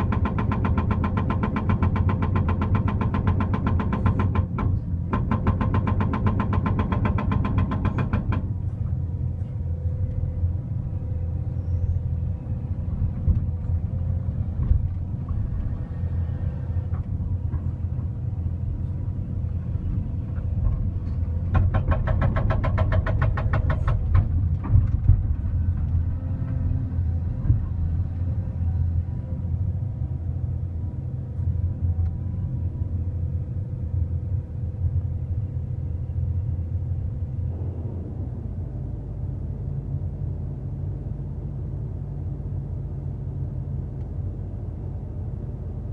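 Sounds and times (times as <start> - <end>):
hydraulic breaker hammering rock: 0.0 - 8.5, 21.5 - 24.4
excavator engine running: 0.0 - 45.9.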